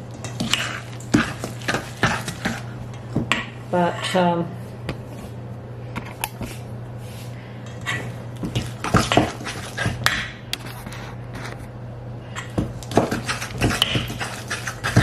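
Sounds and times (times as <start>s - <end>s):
steady low hum: 0.0s - 15.0s
wet squishing of mashing: 0.2s - 3.4s, 8.3s - 10.2s, 12.4s - 15.0s.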